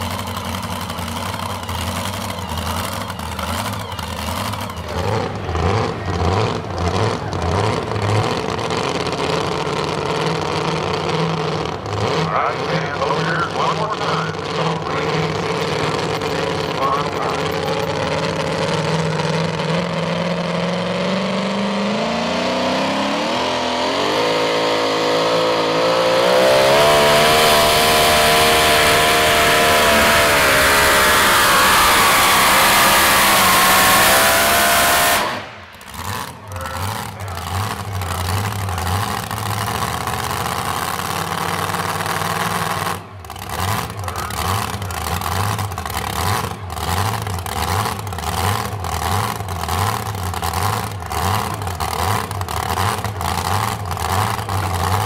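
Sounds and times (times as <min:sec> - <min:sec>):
engine uneven idle: 0:00.0 - 0:20.9, 0:35.1 - 0:55.0
truck engine at full throttle: 0:00.0 - 0:55.0.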